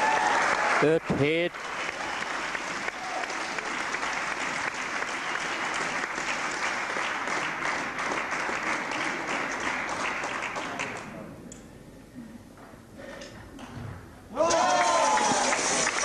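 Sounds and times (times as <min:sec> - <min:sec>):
spectators applauding: 0:00.0 - 0:11.1, 0:14.5 - 0:16.0.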